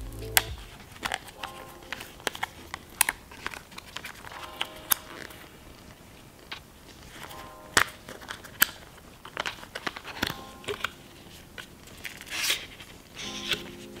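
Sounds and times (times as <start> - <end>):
paperboard rustle: 8.1 - 14.0.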